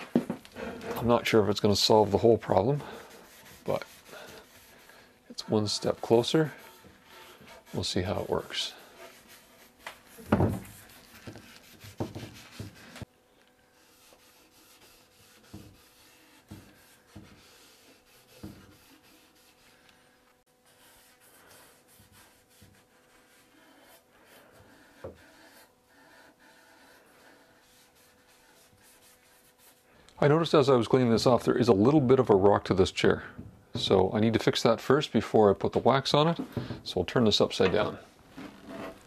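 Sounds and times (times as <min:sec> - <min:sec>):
cloth wiping wood: 0:00.6 - 0:13.1, 0:13.7 - 0:29.9.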